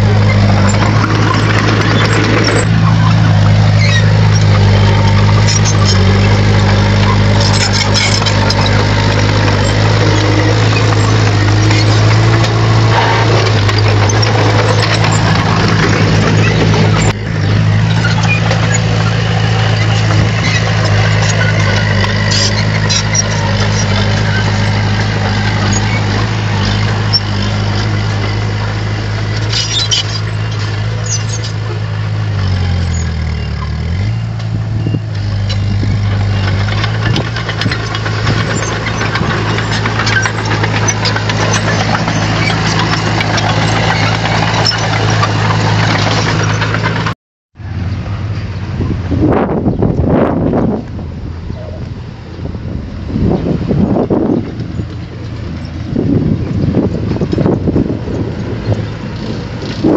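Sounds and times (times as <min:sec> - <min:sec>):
bulldozer diesel engine running: 0:00.0 - 0:59.9
metal clanks: 0:00.1 - 0:31.9, 0:35.2 - 0:47.1.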